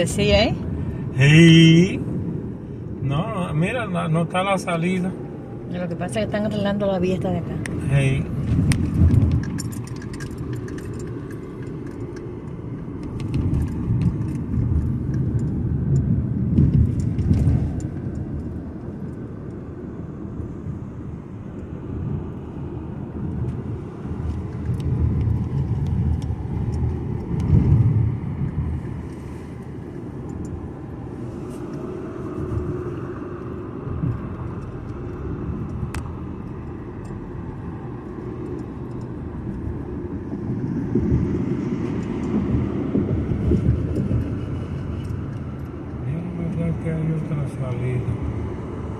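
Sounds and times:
car road and engine noise: 0.0 - 48.9.

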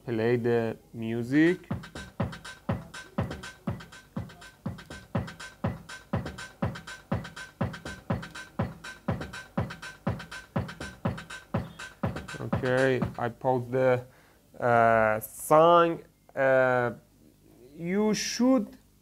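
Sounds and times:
music with a steady beat: 1.5 - 13.2.

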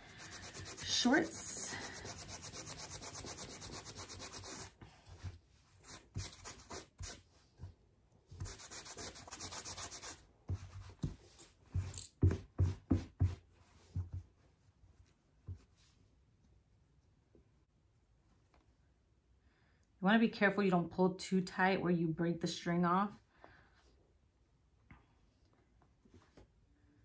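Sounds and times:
sandpaper scraping denim: 0.0 - 4.8, 8.4 - 10.2.

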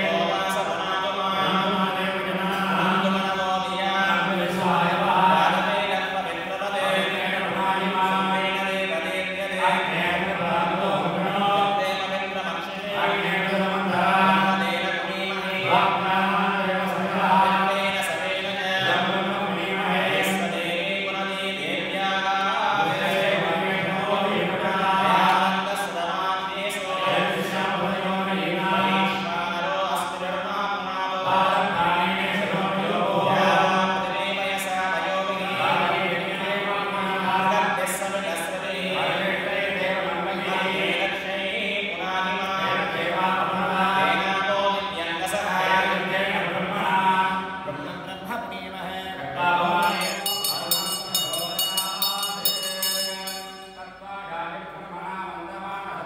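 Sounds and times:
group of men chanting: 0.0 - 48.1, 48.7 - 53.5
rapid high ringing: 49.8 - 54.2.

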